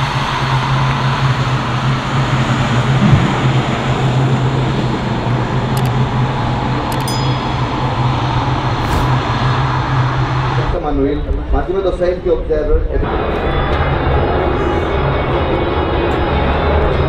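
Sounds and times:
jet engine rushing hum: 1.8 - 5.7.

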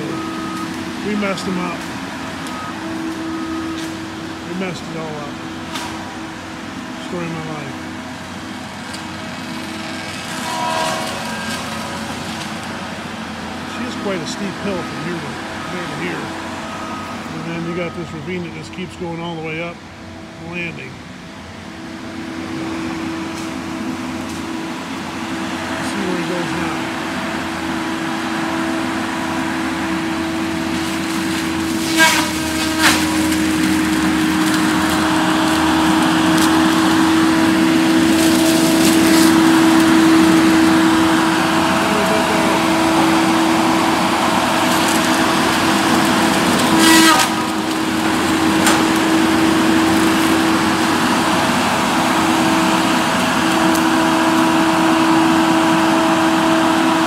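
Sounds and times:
heavy machine engine with whine: 0.0 - 57.0
sharp wood cracks: 30.6 - 37.1, 44.4 - 49.3.

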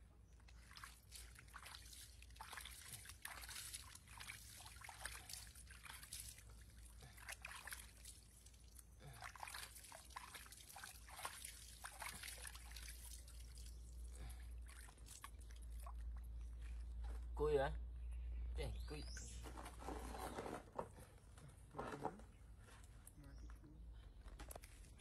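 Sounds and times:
water splashing in plastic basin: 0.5 - 16.7.

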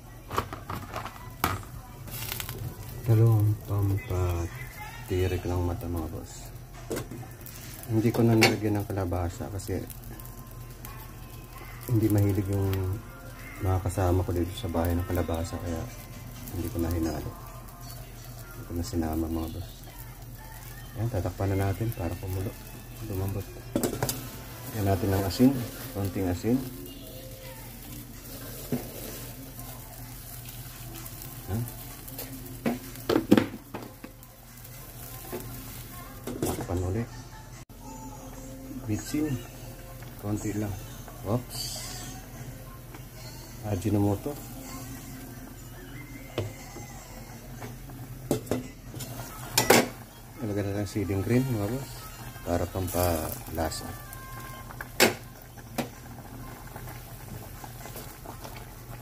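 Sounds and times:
pot boiling bubbling: 0.0 - 37.1, 37.7 - 59.0
soup bubbling in pot: 54.1 - 59.0.

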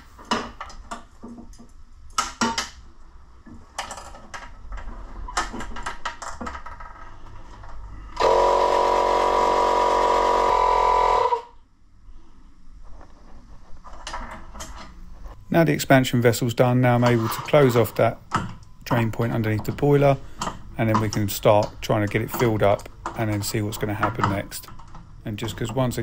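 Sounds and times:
handling clicks and knocks: 17.0 - 26.0.

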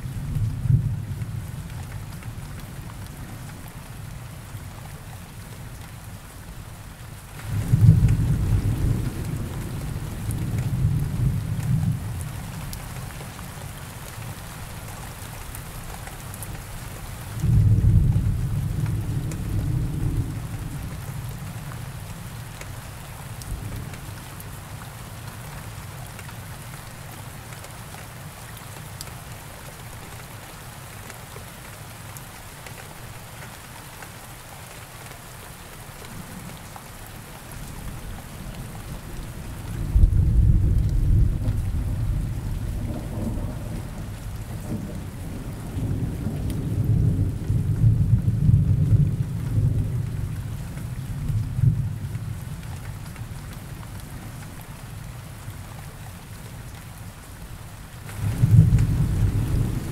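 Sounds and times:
steady rain hissing: 0.0 - 59.9
thunder rolling: 58.2 - 59.9.

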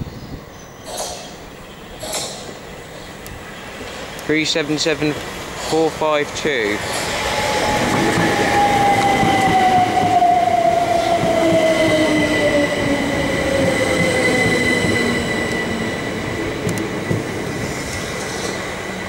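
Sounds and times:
train wheels rumbling on rails: 3.8 - 19.0.

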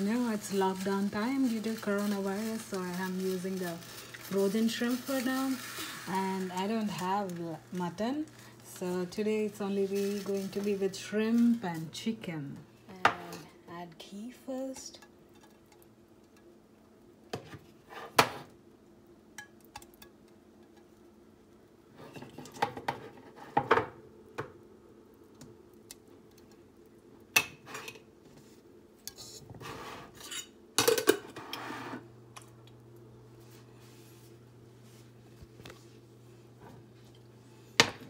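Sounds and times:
low steady hum: 0.0 - 38.0.

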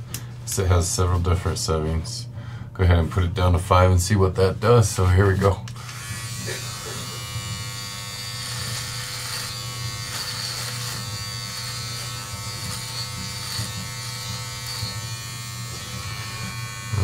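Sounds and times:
blades cutting hair crackles: 5.2 - 17.0
electric hair trimmer buzzing: 5.8 - 17.0.

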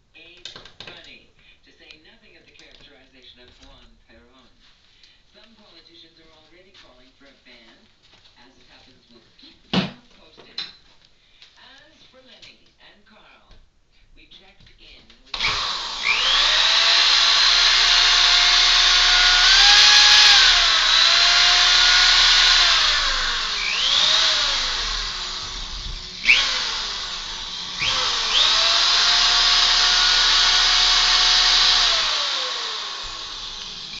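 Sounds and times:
electric motor whining: 15.4 - 34.0.

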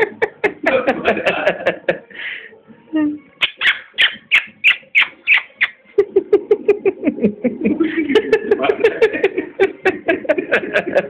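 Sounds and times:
person laughing: 0.0 - 2.0, 6.0 - 11.0.

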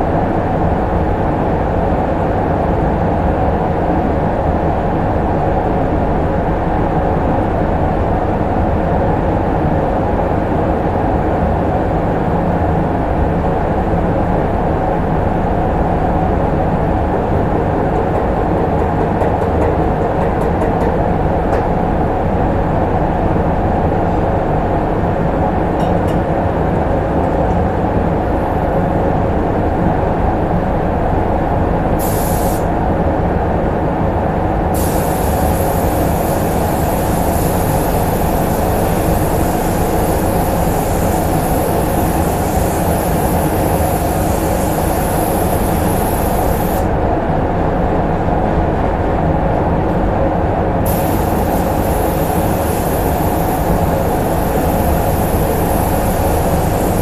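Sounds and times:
ventilation running: 0.0 - 57.0
spray gun hissing: 32.0 - 32.7, 34.7 - 46.9, 50.8 - 57.0.

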